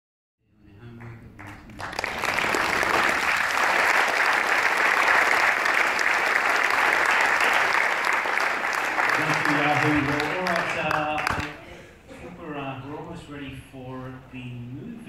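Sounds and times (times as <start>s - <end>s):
audience applauding: 0.8s - 11.6s.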